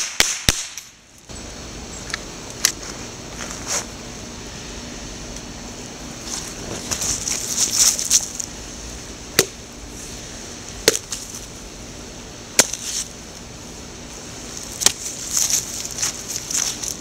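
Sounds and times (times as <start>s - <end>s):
machete chopping into pumpkin: 10.8s - 11.1s, 12.6s - 12.9s.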